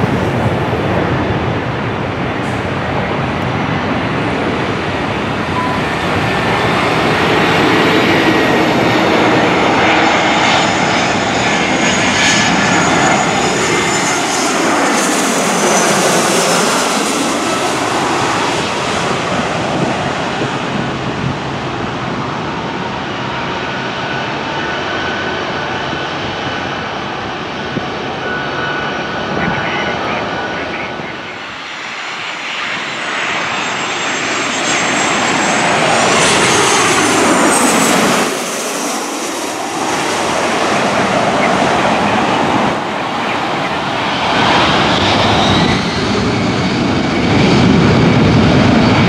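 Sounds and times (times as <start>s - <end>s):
jet airliner passing overhead: 0.0s - 49.0s.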